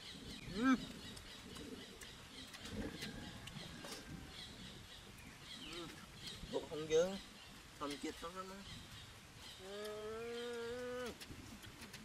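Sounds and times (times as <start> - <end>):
chewing clicks: 0.8 - 3.9
man humming mmm: 9.6 - 11.2.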